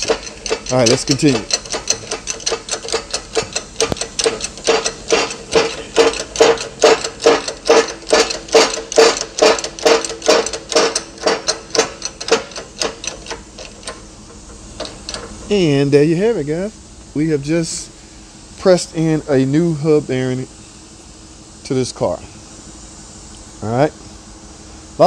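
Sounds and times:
hydraulic press pump clacking: 0.0 - 15.8.

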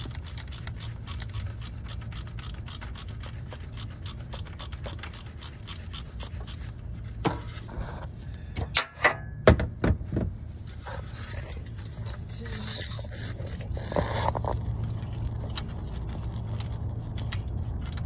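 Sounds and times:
ratchet clicking rapidly: 0.0 - 6.7
metal clanks and knocks: 8.6 - 10.2.

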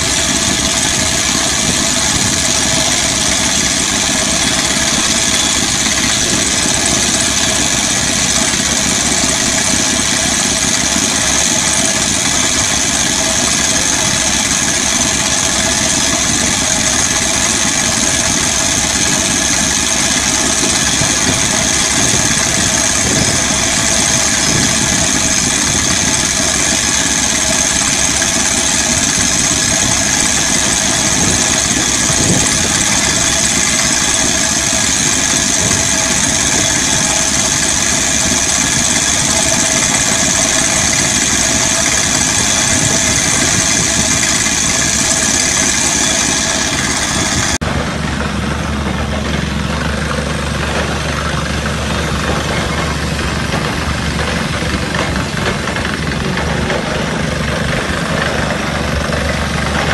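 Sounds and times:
high steady whistle: 0.0 - 47.6
rock drill rig running: 0.0 - 59.9.

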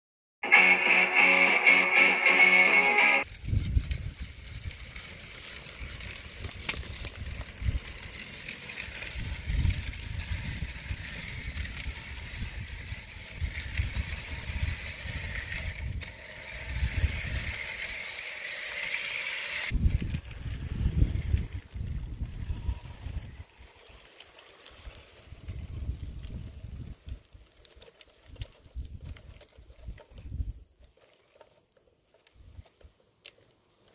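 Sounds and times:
model train motor whirring: 2.1 - 33.9
wind buffeting microphone: 3.3 - 17.9, 19.7 - 23.5, 25.2 - 27.2.

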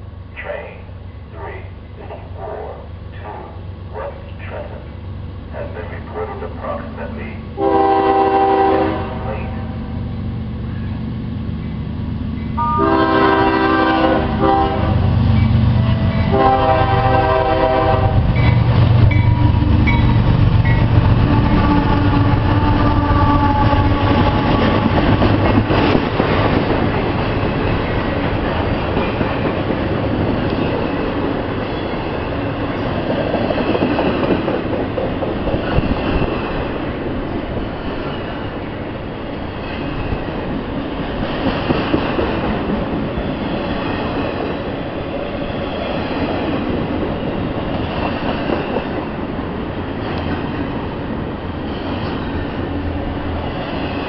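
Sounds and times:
diesel locomotives rumbling: 0.0 - 54.0
train horn blasts: 7.6 - 9.9, 12.6 - 15.2, 15.8 - 18.4, 20.7 - 24.9.

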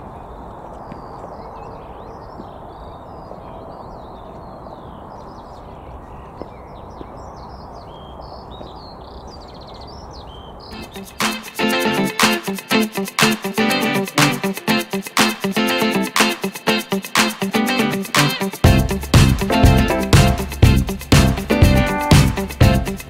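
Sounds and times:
low outdoor background noise: 0.0 - 11.7
small birds chirping: 0.0 - 23.0
strummed guitar music: 10.8 - 23.0.

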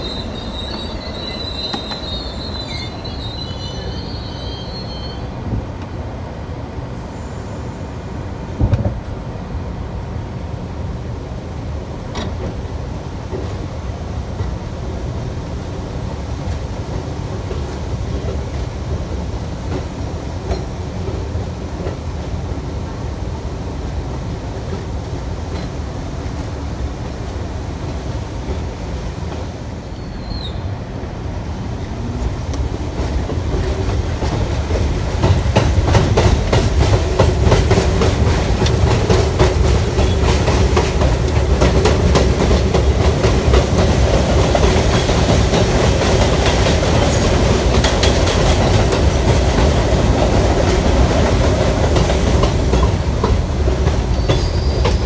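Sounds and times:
train rumble: 0.0 - 55.0
wheels clacking over rail joints: 16.4 - 22.2, 32.1 - 55.0.

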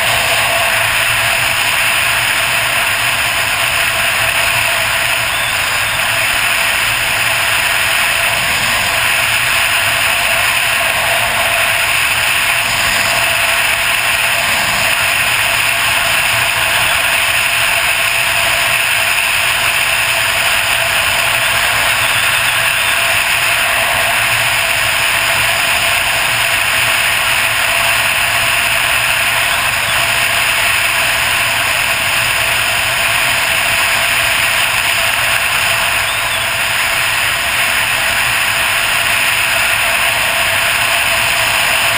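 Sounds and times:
motorcycle engine running: 0.0 - 41.9.

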